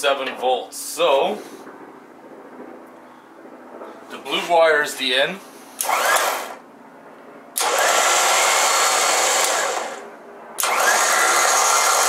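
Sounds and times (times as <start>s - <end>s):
electric winch motor whining: 5.8s - 6.6s, 7.6s - 12.0s.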